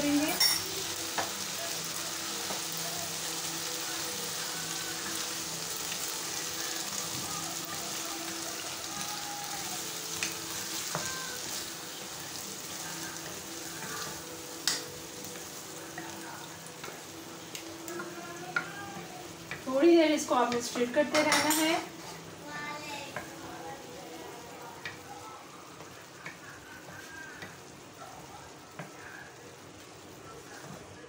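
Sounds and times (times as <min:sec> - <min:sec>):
pasta sizzling in a pan: 0:00.0 - 0:31.0
wooden spatula stirring: 0:03.9 - 0:21.0.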